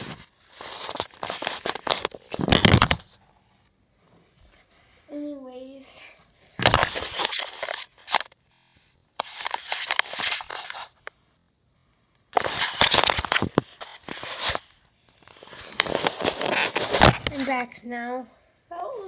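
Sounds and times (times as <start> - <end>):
fingers rubbing on microphone: 15.3 - 17.6.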